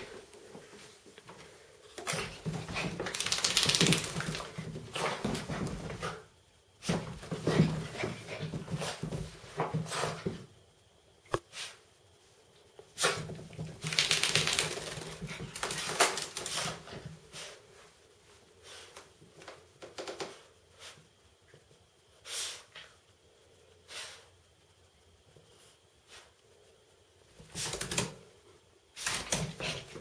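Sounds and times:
dog scrabbling on rug: 0:02.0 - 0:10.4, 0:13.0 - 0:17.5.

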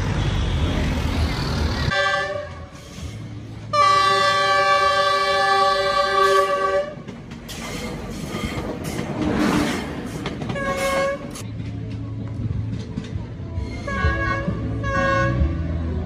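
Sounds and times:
train rushing past: 0:00.0 - 0:16.0
train horn blast: 0:01.9 - 0:03.1, 0:03.7 - 0:07.1, 0:10.6 - 0:11.4, 0:13.7 - 0:15.8.

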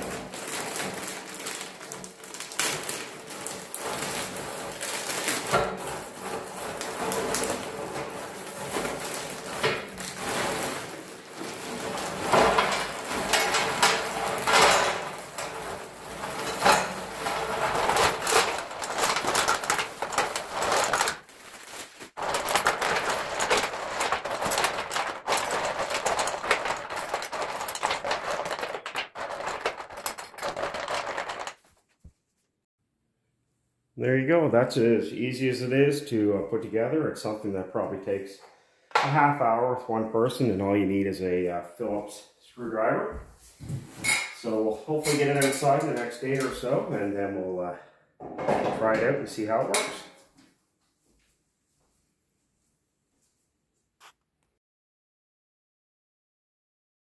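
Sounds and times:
rocks clattering on metal: 0:00.0 - 0:21.3, 0:22.1 - 0:31.7
plastic bag crinkling: 0:00.0 - 0:32.1.

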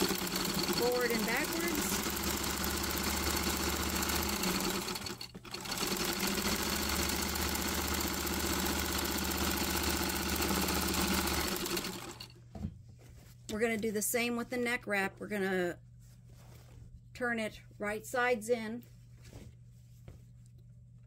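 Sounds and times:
sewing machine stitching: 0:00.0 - 0:12.3.

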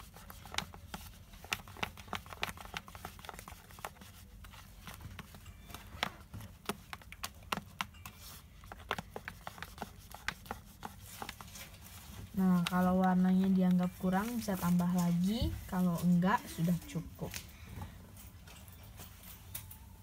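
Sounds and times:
slime being stirred clicking: 0:00.0 - 0:14.7.

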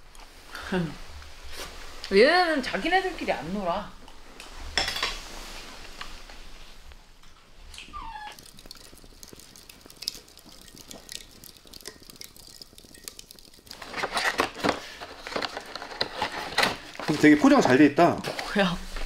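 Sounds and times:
charcoal crackling: 0:00.0 - 0:19.0
dog whining: 0:07.8 - 0:08.4.

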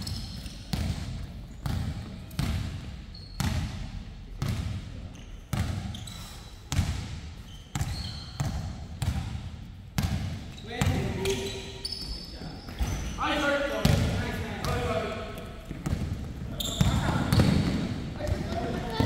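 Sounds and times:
sneaker squeaks: 0:00.0 - 0:01.0, 0:01.6 - 0:03.9, 0:05.1 - 0:06.8, 0:07.4 - 0:08.8, 0:10.4 - 0:14.0, 0:15.4 - 0:19.0
basketball bouncing on gym floor: 0:00.0 - 0:06.1, 0:06.7 - 0:11.5, 0:13.8 - 0:15.0, 0:15.6 - 0:19.0.

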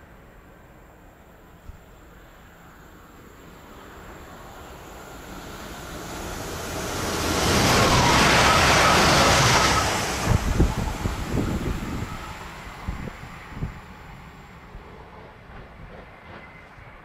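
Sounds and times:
train passing at speed: 0:00.0 - 0:17.0
wind buffeting microphone: 0:05.9 - 0:17.0.

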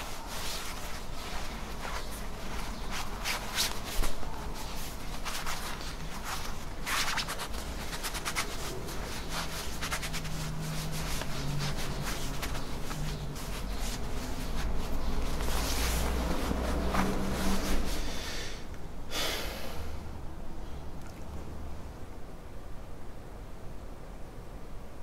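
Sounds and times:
cloth rustling and rubbing: 0:00.0 - 0:18.4.

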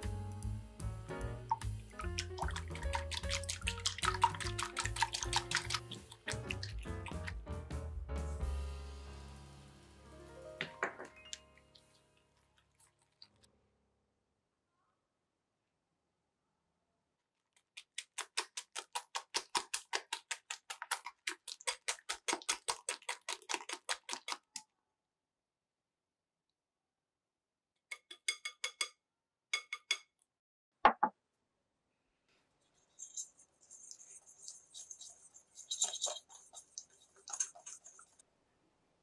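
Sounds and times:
whisk clicking against glass bowl: 0:02.0 - 0:07.2, 0:33.8 - 0:38.2
soft scratchy rustle: 0:32.6 - 0:38.2.

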